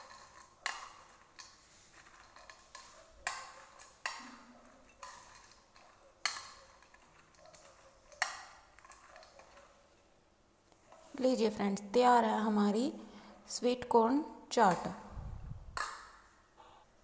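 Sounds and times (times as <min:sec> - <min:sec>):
corn kernels rustling: 0:00.0 - 0:06.0.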